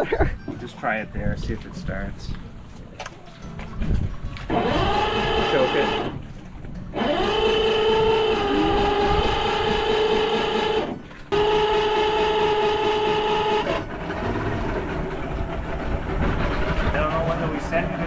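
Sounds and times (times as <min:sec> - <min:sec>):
rough engine rumble: 0:00.0 - 0:18.0
electric starter cranking: 0:04.4 - 0:18.0.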